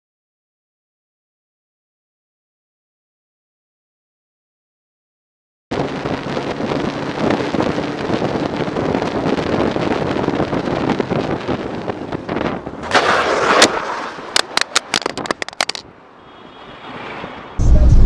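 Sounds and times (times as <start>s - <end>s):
vehicle road and engine noise: 5.7s - 18.0s
harsh noise: 17.6s - 18.0s.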